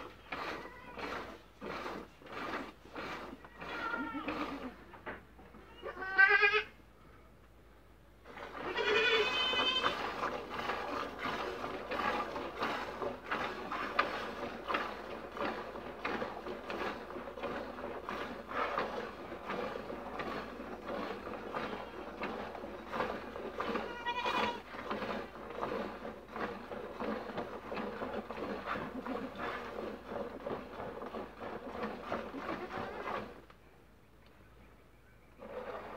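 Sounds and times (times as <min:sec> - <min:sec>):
goat bleating: 0:00.0 - 0:01.2, 0:03.3 - 0:04.8, 0:05.7 - 0:06.8, 0:08.6 - 0:10.0, 0:23.7 - 0:24.6
milk squirting into a bucket: 0:09.4 - 0:33.4.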